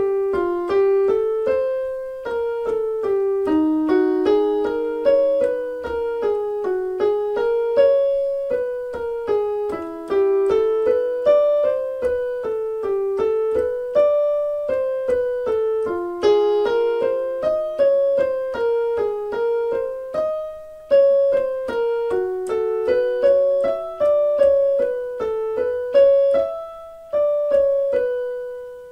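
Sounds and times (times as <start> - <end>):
piano repeating melodic phrase: 0.0 - 28.9.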